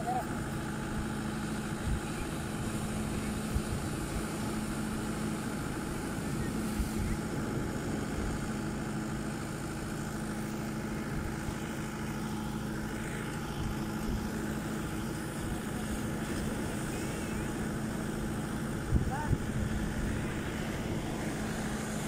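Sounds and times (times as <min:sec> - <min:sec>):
tractor engine running: 0:00.0 - 0:22.0
surf washing on beach: 0:15.2 - 0:22.0.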